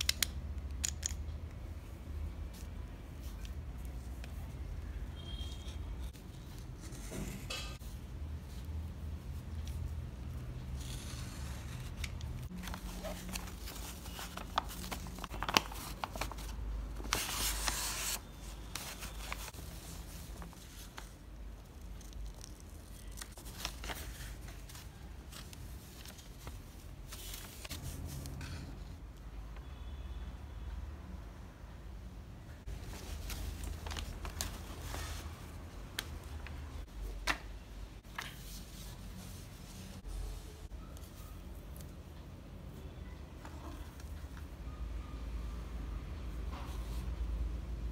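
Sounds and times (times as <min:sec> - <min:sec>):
stiff paper rustling: 0:10.7 - 0:21.2.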